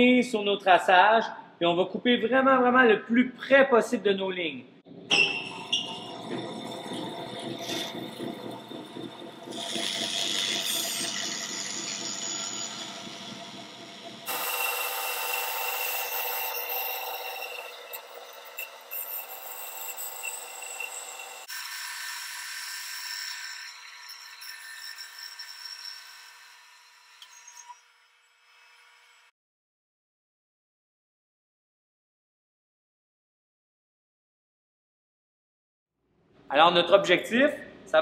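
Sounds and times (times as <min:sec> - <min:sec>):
band saw rasping through wood: 0:06.3 - 0:27.3.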